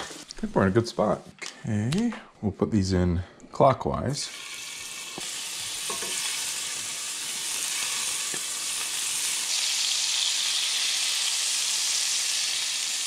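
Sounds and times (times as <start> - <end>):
scallops sizzling in a frying pan: 4.3 - 13.0.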